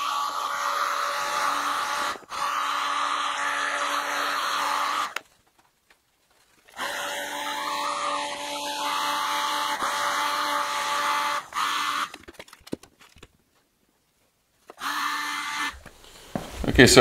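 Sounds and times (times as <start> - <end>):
heat gun blowing air: 0.0 - 5.2, 6.7 - 12.1.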